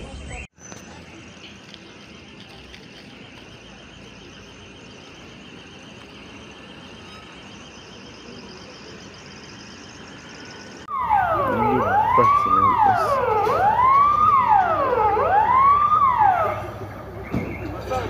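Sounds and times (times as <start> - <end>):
high-pitched alarm warble: 3.4 - 17.3.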